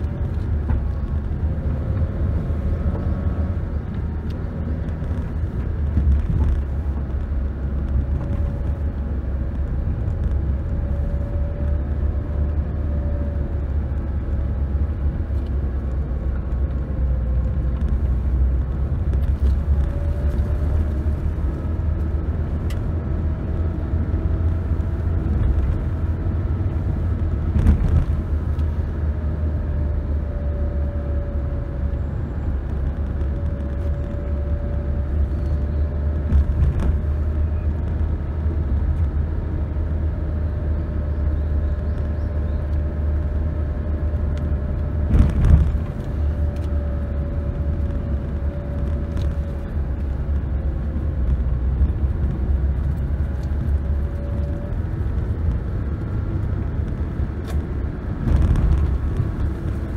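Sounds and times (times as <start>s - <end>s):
car tyres and engine rumble: 0.0s - 59.9s.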